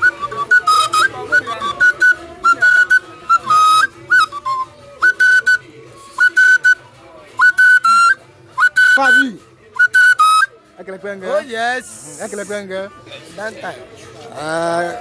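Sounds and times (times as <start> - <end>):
wooden flute shrill phrases: 0.0 - 6.8, 7.4 - 10.6.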